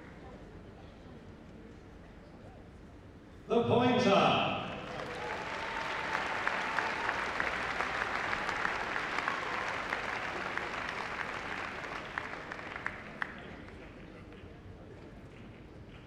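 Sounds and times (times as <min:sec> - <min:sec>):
audience applauding: 0:04.8 - 0:14.4.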